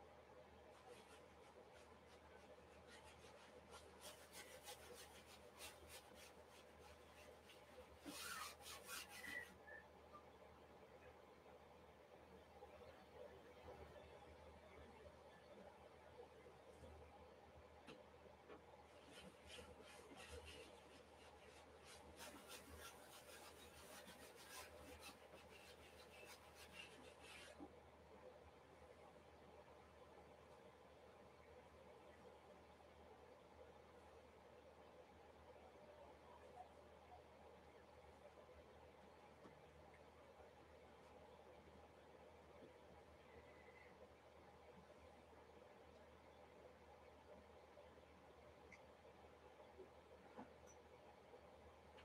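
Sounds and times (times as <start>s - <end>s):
paint scrubbing on canvas: 0.7s - 9.8s, 19.0s - 27.6s.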